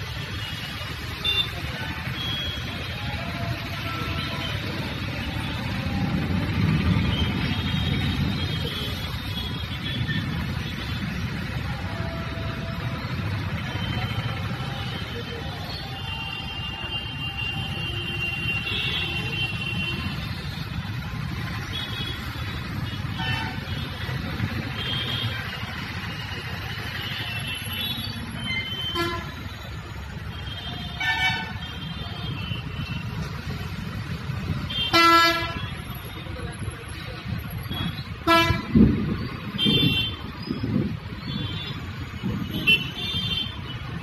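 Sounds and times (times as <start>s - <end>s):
traffic on wet road: 0.0s - 44.0s
vehicle horn toots: 34.8s - 35.7s, 38.2s - 38.8s.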